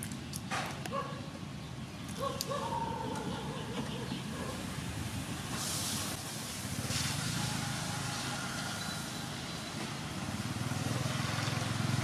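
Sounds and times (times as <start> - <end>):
steady hiss: 5.1 - 8.4.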